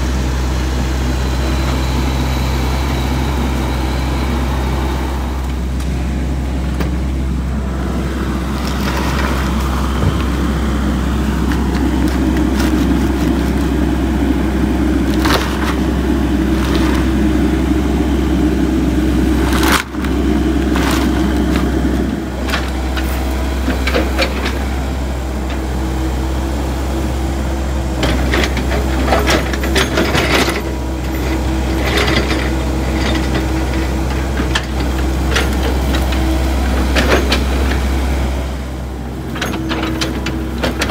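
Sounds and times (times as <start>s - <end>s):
diesel engine running: 0.0s - 40.9s
knocks and scrapes: 8.5s - 10.6s, 11.4s - 13.8s, 16.5s - 17.2s, 19.4s - 24.6s.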